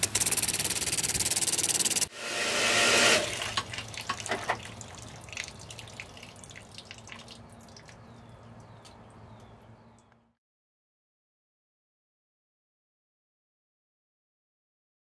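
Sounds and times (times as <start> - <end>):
water dripping and trickling: 3.3 - 10.2.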